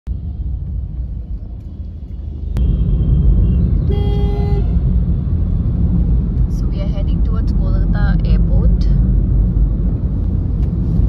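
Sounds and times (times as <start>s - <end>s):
road traffic rumble: 0.1s - 11.0s
car horn honk: 3.3s - 4.9s.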